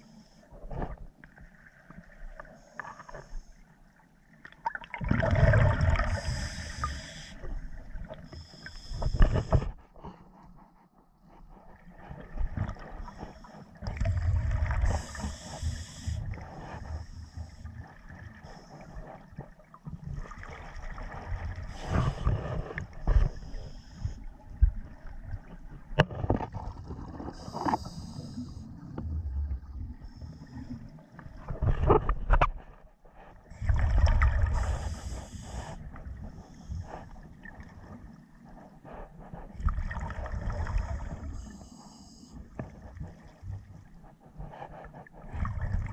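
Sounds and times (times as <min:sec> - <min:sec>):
exhaled bubbles gurgling: 0:04.6 - 0:08.3, 0:13.8 - 0:17.4, 0:33.5 - 0:36.6, 0:39.5 - 0:41.7
diver breathing through regulator: 0:06.0 - 0:10.4, 0:12.9 - 0:17.8, 0:21.6 - 0:24.4, 0:27.3 - 0:29.0, 0:33.1 - 0:37.3, 0:38.5 - 0:43.3, 0:44.0 - 0:45.8.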